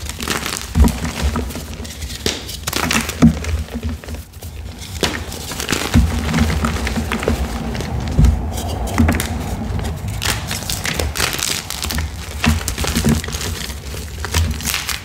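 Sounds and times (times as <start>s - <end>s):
chalk crackling and crunching: 0.0s - 15.0s.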